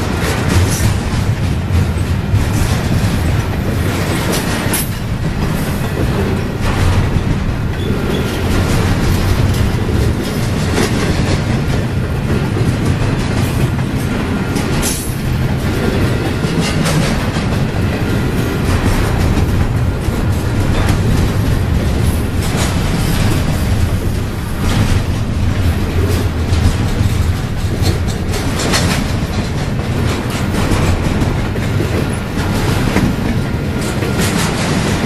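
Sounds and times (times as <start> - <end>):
freight train wheels clicking: 0.0 - 35.0
sharp rail clack: 0.0 - 35.0.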